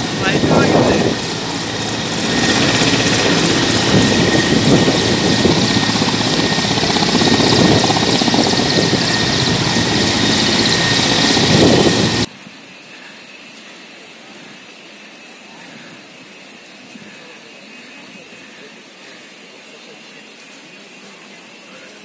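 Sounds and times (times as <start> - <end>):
helicopter rotor beat: 0.0 - 12.3
helicopter turbine whine: 0.0 - 22.0.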